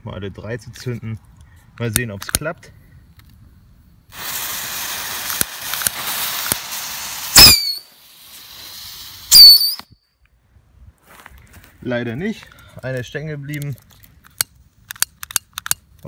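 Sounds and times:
fuse hissing: 4.1s - 9.8s
whistling rockets launching: 4.1s - 10.0s.

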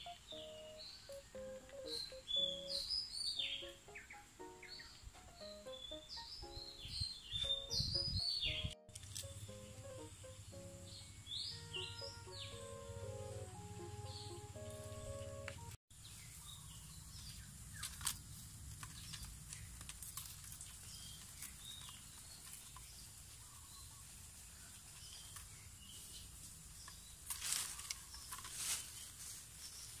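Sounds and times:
music: 0.0s - 15.8s
faint birds chirping: 0.0s - 18.0s.

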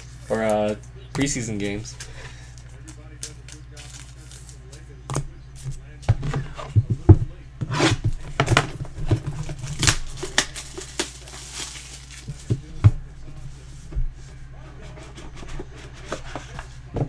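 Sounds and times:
packaging rustling and tearing: 9.1s - 12.5s.

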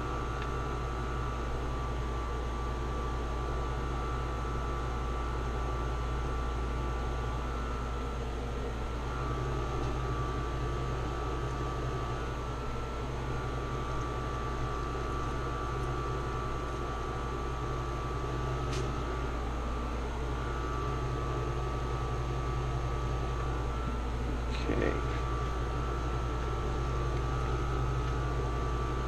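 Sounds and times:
air conditioner humming: 0.0s - 29.0s.

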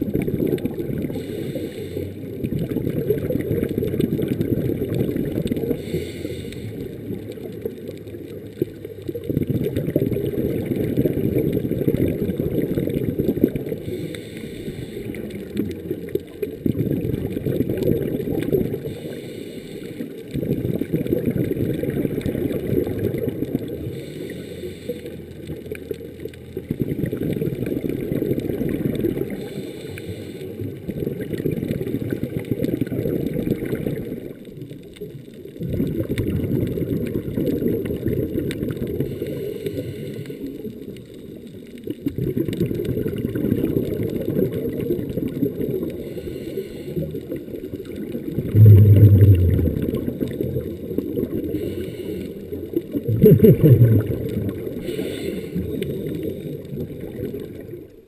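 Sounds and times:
exhaled air bubbling underwater: 0.0s - 58.0s
regulator inhalation hiss: 1.1s - 2.2s, 5.8s - 6.9s, 13.8s - 15.2s, 18.9s - 20.0s, 54.8s - 56.5s.

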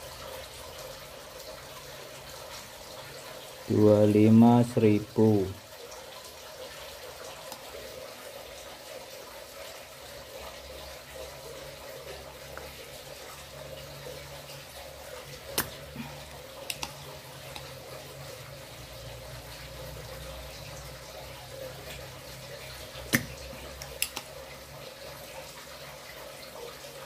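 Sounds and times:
desoldering pump snapping: 15.5s - 15.8s, 16.6s - 17.6s, 23.0s - 24.3s.

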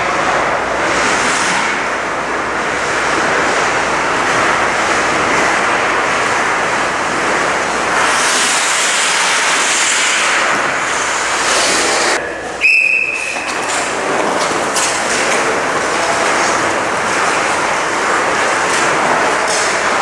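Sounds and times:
skates scraping ice: 3.0s - 12.2s, 12.9s - 20.0s
high-pitched whistle blast: 12.6s - 13.5s.

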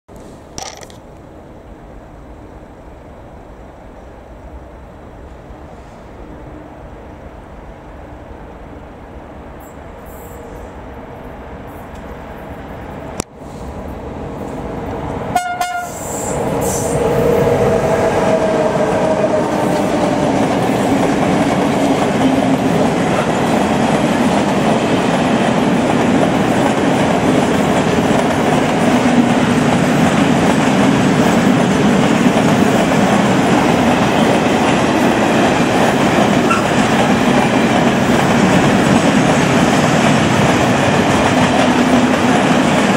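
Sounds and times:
freight train passing: 0.7s - 42.9s
train horn blast: 15.3s - 17.0s
wheels clattering on rails: 19.7s - 42.9s.

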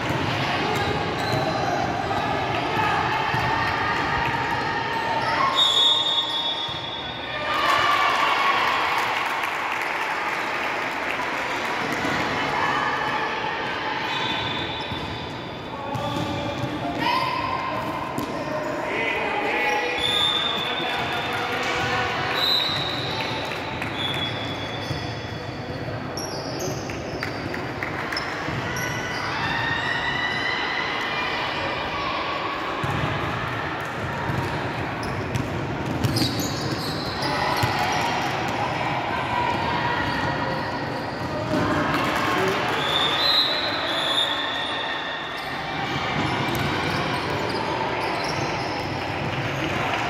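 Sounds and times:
din of basketball play: 0.0s - 50.0s
voices in a large hall: 0.0s - 50.0s
sneakers squeaking on floor: 0.7s - 1.8s, 5.2s - 7.2s, 14.1s - 17.3s, 22.4s - 29.4s, 34.3s - 38.3s, 40.0s - 41.7s, 42.8s - 49.7s
ball bouncing on court: 15.9s - 17.0s, 18.0s - 18.4s, 32.8s - 38.6s, 41.2s - 42.6s, 46.2s - 49.8s
basketball bouncing: 35.3s - 36.8s.

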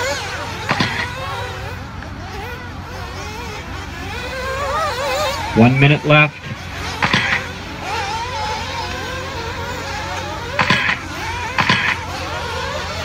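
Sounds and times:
rc car engines whining: 0.0s - 13.0s
steady low hum: 0.0s - 13.0s
short sharp noisy bursts: 5.2s - 8.9s, 10.4s - 13.0s.

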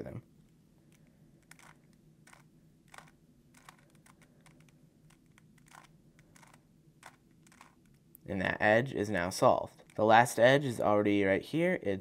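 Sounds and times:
puzzle cube clicking: 0.9s - 8.0s.

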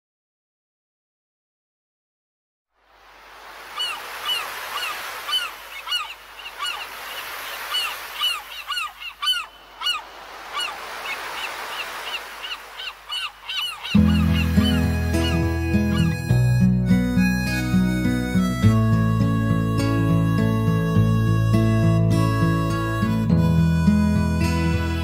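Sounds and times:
steady background hiss: 2.8s - 15.6s
seagulls crying: 3.6s - 25.0s
music: 13.9s - 25.0s.

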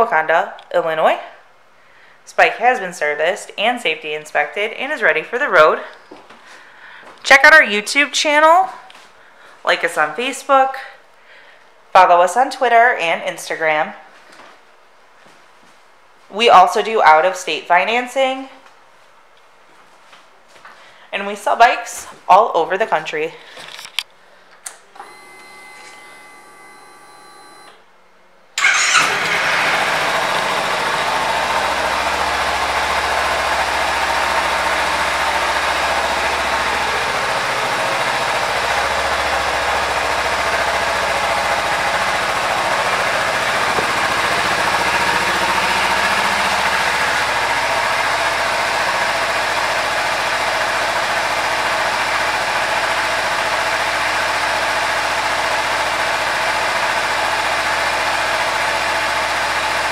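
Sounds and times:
motorcycle engine idling: 28.6s - 59.9s
motorcycle engine starting: 28.6s - 59.9s.

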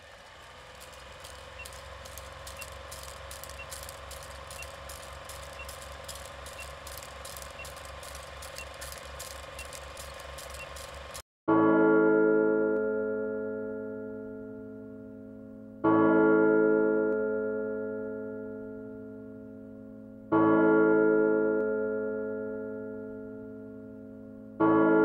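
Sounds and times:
film projector whirring and clicking: 0.0s - 11.2s
faint short beeps: 1.2s - 11.0s.

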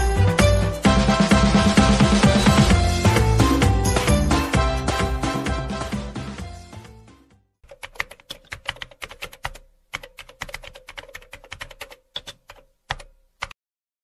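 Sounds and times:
rapid keyboard key clicks: 7.6s - 13.6s.

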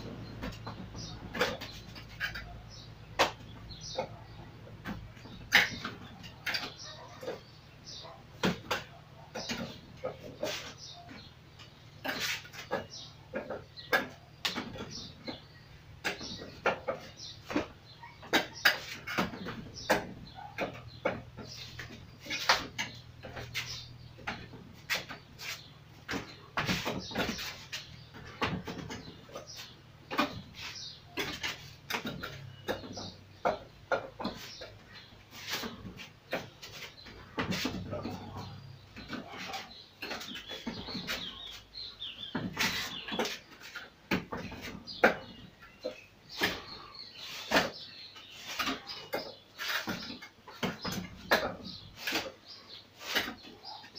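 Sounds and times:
faint birds chirping: 0.0s - 53.9s
sharp wooden knocks: 12.0s - 47.9s.

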